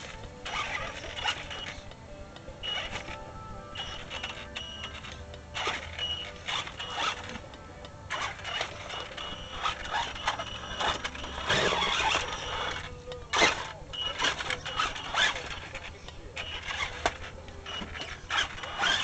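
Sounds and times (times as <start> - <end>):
electric motor and gears whining: 0.0 - 19.0
rattling and scrabbling over logs: 10.8 - 12.4.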